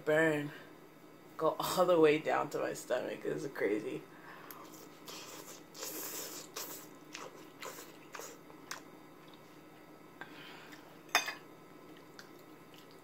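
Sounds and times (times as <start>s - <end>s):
wet chewing of noodles: 4.6s - 9.9s, 11.8s - 13.0s.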